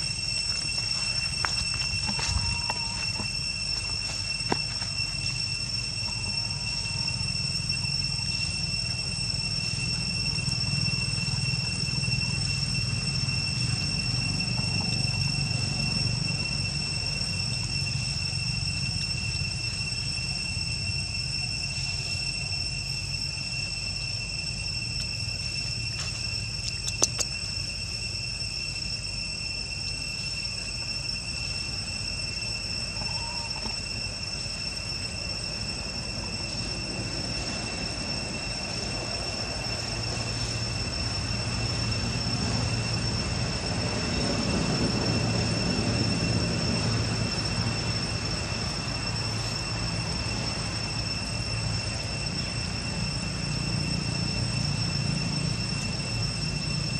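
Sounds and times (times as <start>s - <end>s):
insects shrilling: 0.0s - 56.9s
sharp click: 26.6s - 27.4s.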